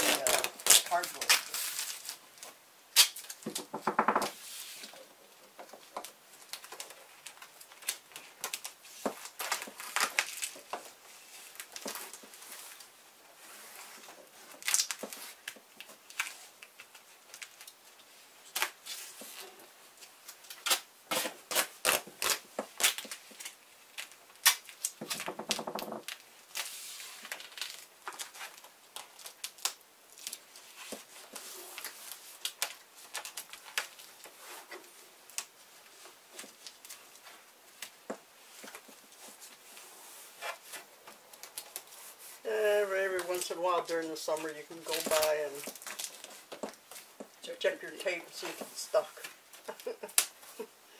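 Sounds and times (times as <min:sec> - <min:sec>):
tape ripping off the roll: 0:00.0 - 0:05.1, 0:05.8 - 0:12.9, 0:13.5 - 0:42.4, 0:44.4 - 0:47.3, 0:48.5 - 0:50.7
tape clicks taps and rustles: 0:44.9 - 0:47.4.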